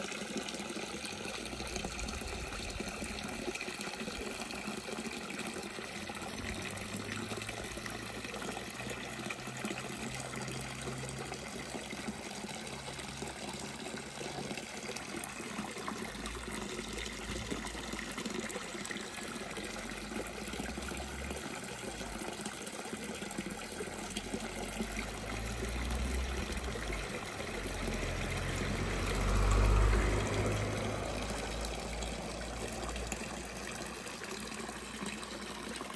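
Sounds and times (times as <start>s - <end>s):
bubbling fountain jets: 0.0s - 35.9s
water splashing into pond: 0.0s - 35.9s.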